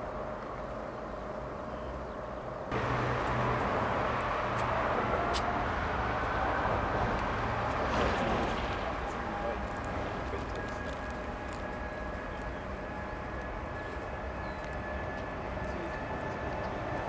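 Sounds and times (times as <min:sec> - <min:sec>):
jet engine rush and whine: 0:00.0 - 0:17.0.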